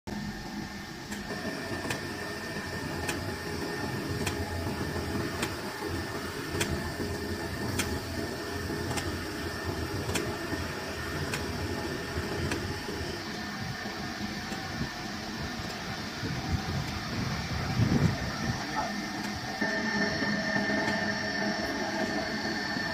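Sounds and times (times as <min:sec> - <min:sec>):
blender machine rumble and hum: 0:00.1 - 0:22.9.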